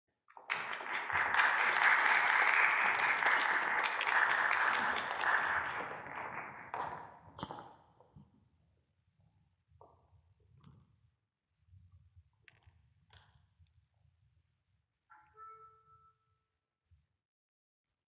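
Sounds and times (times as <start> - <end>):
audience applauding: 0.3 - 6.9.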